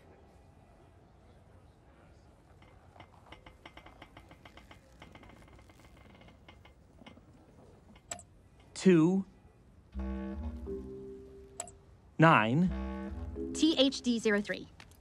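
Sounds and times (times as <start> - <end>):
faint slow creaking clicks: 2.5 - 8.8.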